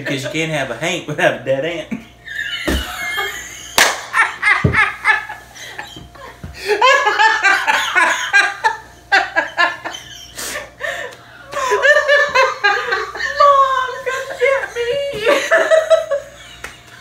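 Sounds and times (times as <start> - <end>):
man and woman laughing: 1.9 - 17.0.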